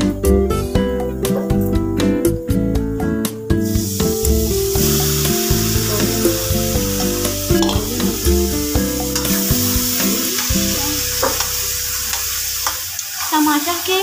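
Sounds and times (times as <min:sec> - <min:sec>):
background music: 0:00.0 - 0:12.8
vegetables sizzling in a pan: 0:03.6 - 0:14.0.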